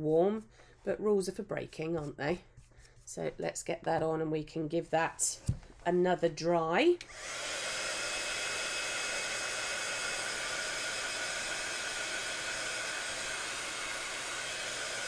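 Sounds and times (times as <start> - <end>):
heat gun blowing hot air: 7.0 - 15.0.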